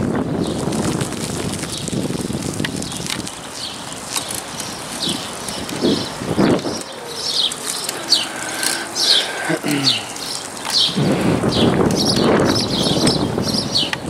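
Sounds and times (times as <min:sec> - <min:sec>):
footsteps on pavement: 0:00.0 - 0:14.0
wind rumbling on microphone: 0:00.0 - 0:14.0
birds chirping: 0:02.8 - 0:14.0.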